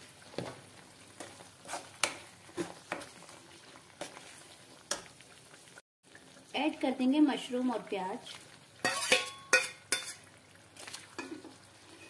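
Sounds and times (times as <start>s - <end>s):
paste sizzling in oil: 0.0s - 12.0s
metal ladle scraping a pan: 8.8s - 10.3s, 11.2s - 12.0s.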